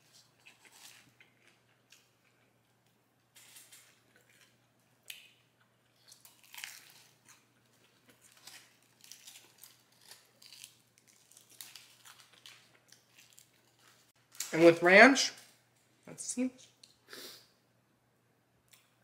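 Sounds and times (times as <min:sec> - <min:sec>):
person chewing fried chicken: 0:00.0 - 0:14.1.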